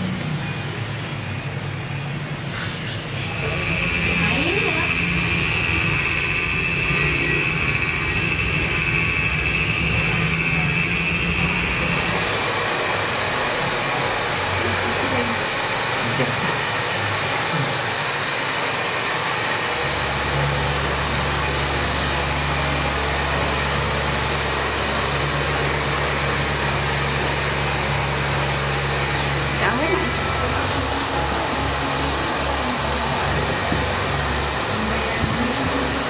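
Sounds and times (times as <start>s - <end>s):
machine-like rushing noise: 0.0s - 36.0s.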